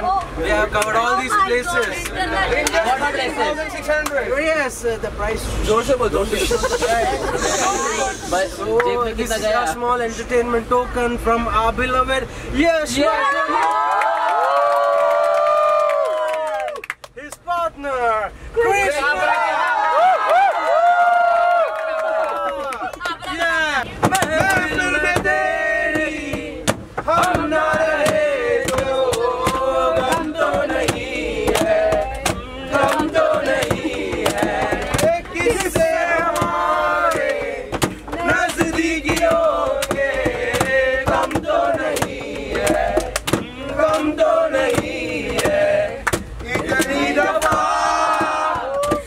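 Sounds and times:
men chanting and singing: 0:23.9 - 0:49.0
percussive hits: 0:24.0 - 0:49.0.

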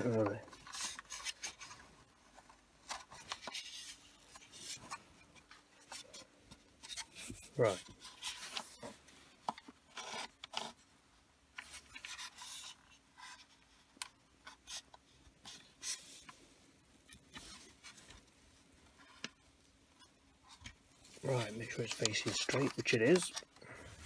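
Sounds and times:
plastic parts scraping together: 0:00.0 - 0:10.8, 0:20.0 - 0:24.0.

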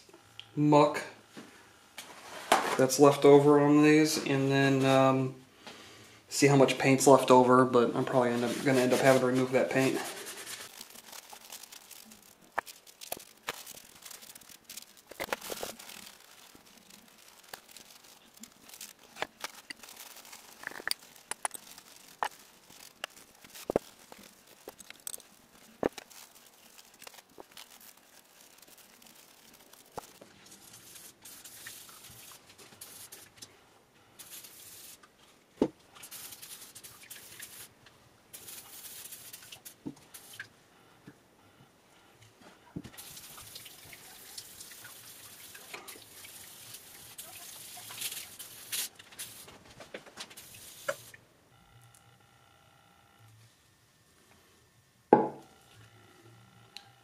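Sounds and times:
paper towels rustling: 0:08.1 - 0:33.4
aerosol spray hissing: 0:30.7 - 0:33.3, 0:34.2 - 0:35.0, 0:36.0 - 0:37.7, 0:38.4 - 0:40.4, 0:50.4 - 0:51.1.

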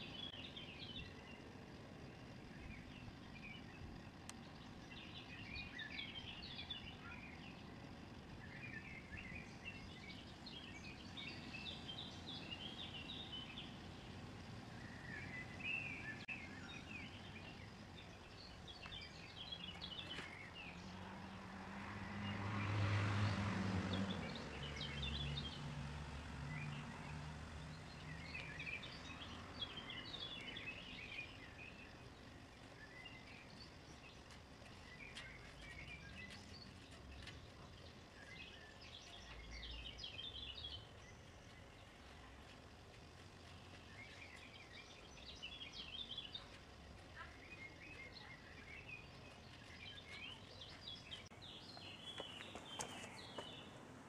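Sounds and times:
motor vehicle passing: 0:00.0 - 0:41.1
small birds chirping and singing: 0:00.0 - 0:54.0.

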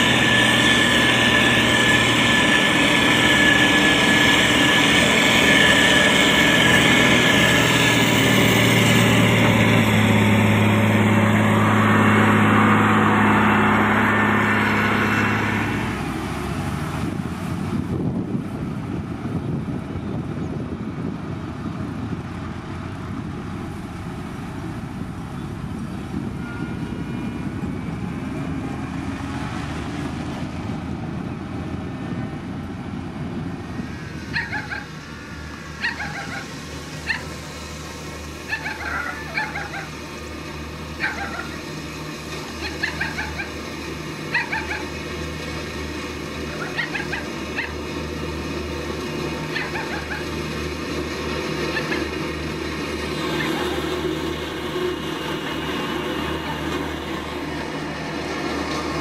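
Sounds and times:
engine rumbling: 0:00.0 - 0:59.0
dog barking: 0:34.3 - 0:34.9, 0:35.8 - 0:36.5, 0:37.1 - 0:37.3, 0:38.5 - 0:39.9, 0:41.0 - 0:41.6, 0:42.6 - 0:43.6, 0:44.3 - 0:44.9, 0:46.6 - 0:47.8, 0:49.5 - 0:50.3, 0:51.7 - 0:52.1.

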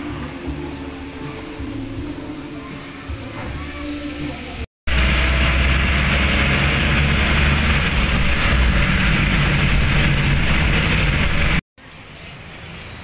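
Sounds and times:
motorcycle engine running: 0:04.9 - 0:11.6
road and wind noise: 0:04.9 - 0:13.0.

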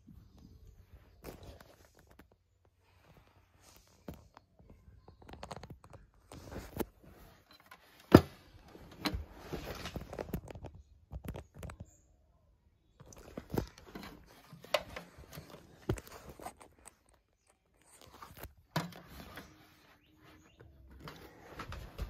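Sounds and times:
handling knocks and clicks: 0:13.0 - 0:19.8.

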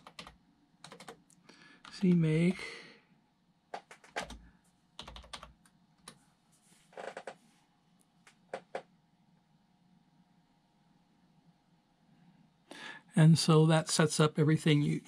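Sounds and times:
computer keyboard typing: 0:00.0 - 0:02.3, 0:03.7 - 0:06.2, 0:08.3 - 0:08.9.

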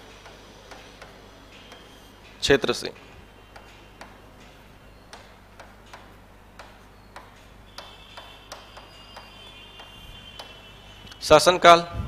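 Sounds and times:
writing taps on a board: 0:03.5 - 0:10.6.

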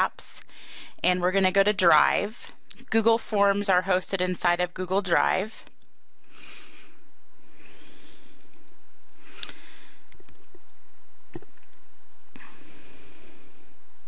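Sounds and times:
soft breathing: 0:00.4 - 0:01.0, 0:06.2 - 0:10.6, 0:12.3 - 0:14.0.

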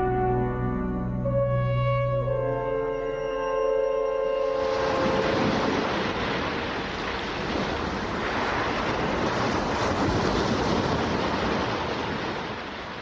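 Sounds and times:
sea surf washing in waves: 0:04.3 - 0:13.0.

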